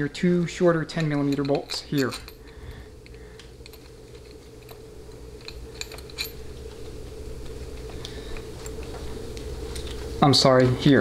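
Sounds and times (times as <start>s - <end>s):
steady low hum: 0.0s - 11.0s
light metallic clicks of bolts: 0.8s - 4.8s.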